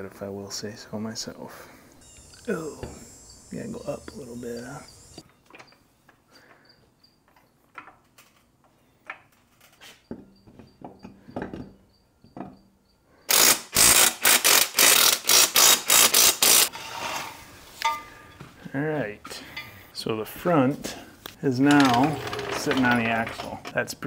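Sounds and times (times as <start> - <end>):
impact wrench bursts: 13.3 - 16.7.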